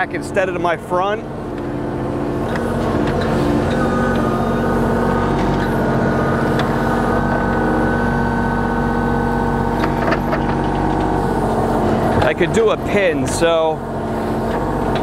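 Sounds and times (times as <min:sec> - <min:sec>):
excavator diesel engine running: 0:00.0 - 0:15.0
high hydraulic whine: 0:00.0 - 0:15.0.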